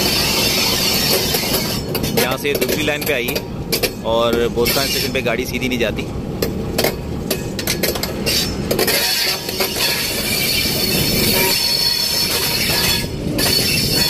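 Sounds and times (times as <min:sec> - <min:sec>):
train wheels squealing: 0:00.0 - 0:02.0, 0:04.6 - 0:05.2, 0:08.2 - 0:14.0
sharp clicks of train wheels: 0:00.0 - 0:14.0
train wheels rumbling: 0:00.0 - 0:14.0.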